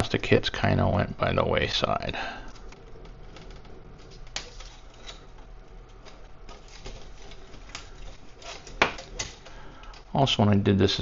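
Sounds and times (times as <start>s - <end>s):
plastic handling noise: 2.4s - 10.1s.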